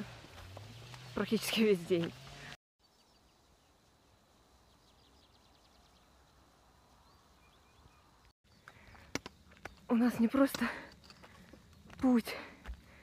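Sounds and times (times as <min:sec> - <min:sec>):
bird song trills and chirps: 0:02.8 - 0:12.1.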